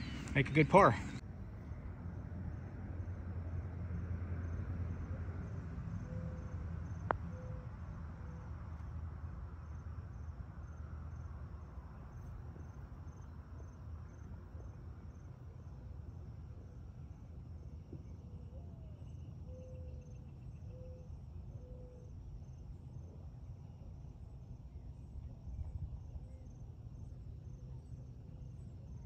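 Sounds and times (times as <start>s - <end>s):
low outdoor rumble: 0.0s - 29.0s
insects chirping: 9.6s - 18.2s.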